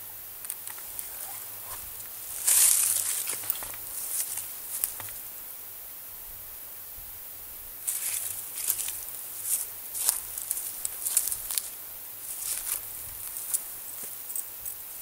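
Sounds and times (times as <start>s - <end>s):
footsteps crunching in dry leaves: 0.7s - 5.2s, 7.8s - 15.0s.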